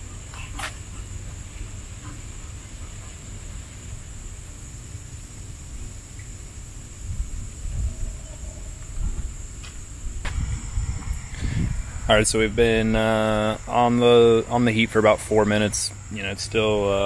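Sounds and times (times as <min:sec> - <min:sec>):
insects buzzing: 0:00.0 - 0:17.0
low rumble: 0:06.7 - 0:16.1.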